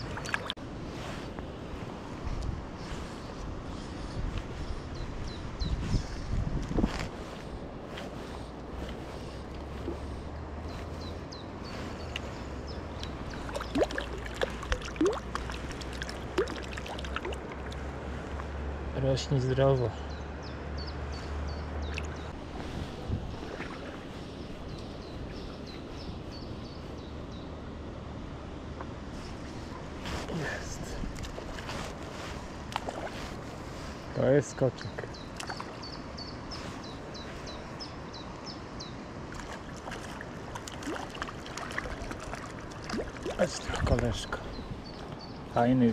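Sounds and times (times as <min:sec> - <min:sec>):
water plops and gurgles: 0:00.0 - 0:00.6, 0:13.1 - 0:17.8, 0:21.9 - 0:22.3, 0:32.7 - 0:33.1, 0:35.4 - 0:35.8, 0:39.3 - 0:44.1
small stream running: 0:00.0 - 0:45.9.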